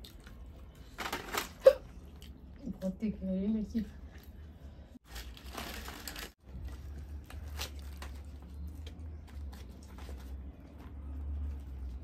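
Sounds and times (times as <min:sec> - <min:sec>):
crisp bread tearing: 0:05.0 - 0:10.2
crisp bread crackles: 0:05.0 - 0:12.0.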